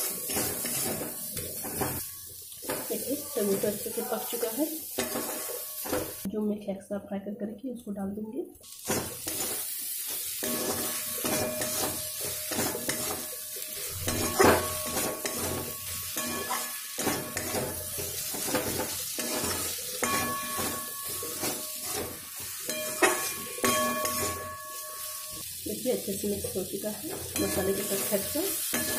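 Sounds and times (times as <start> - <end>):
food sizzling in a pan: 0.0 - 6.3, 8.6 - 28.9
metal spatula scraping a pan: 0.0 - 6.3, 8.7 - 25.4, 27.1 - 28.9
spatula knocking on pan: 14.0 - 25.0.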